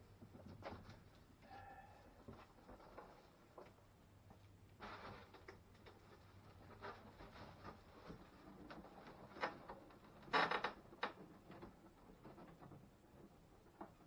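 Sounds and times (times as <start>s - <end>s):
rustling and handling noises: 0.0s - 14.0s.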